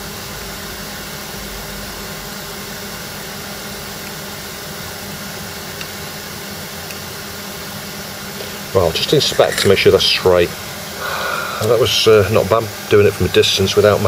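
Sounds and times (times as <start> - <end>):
steady hiss: 4.1 - 14.0.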